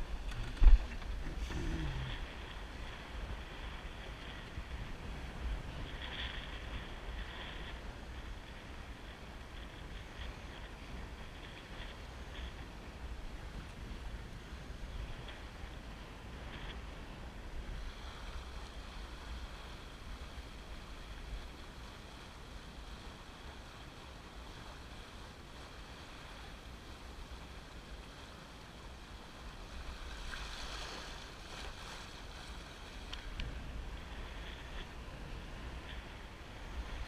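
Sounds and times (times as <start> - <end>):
wind buffeting microphone: 0.0 - 25.0
water splashing along boat hull: 0.0 - 37.0.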